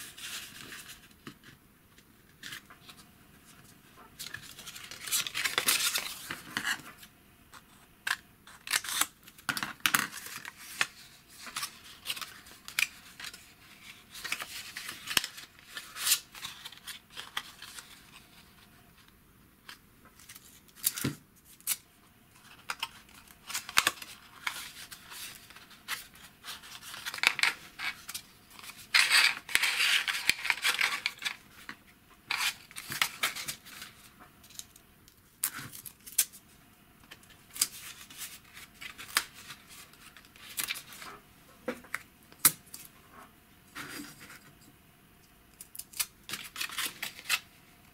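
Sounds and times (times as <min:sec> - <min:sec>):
paper being folded and creased: 0:02.3 - 0:06.9, 0:10.0 - 0:18.7, 0:22.4 - 0:31.5, 0:46.0 - 0:47.4.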